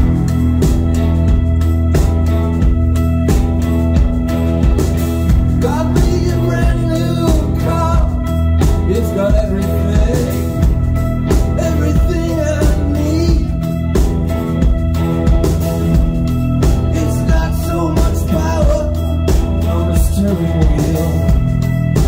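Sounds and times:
drums steady beat: 0:00.0 - 0:22.0
electric guitar chords: 0:00.0 - 0:22.0
man singing: 0:05.5 - 0:10.8, 0:11.5 - 0:13.8, 0:16.8 - 0:21.6.

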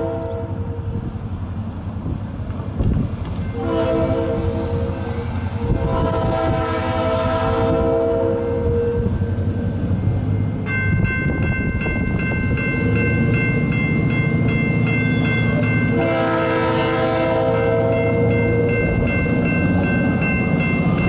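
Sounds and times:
locomotive air horn blast: 0:00.0 - 0:01.0, 0:03.6 - 0:09.3, 0:15.9 - 0:18.0
diesel locomotive engine rumbling: 0:00.0 - 0:21.0
bell ringing: 0:10.3 - 0:16.1, 0:17.6 - 0:21.0.

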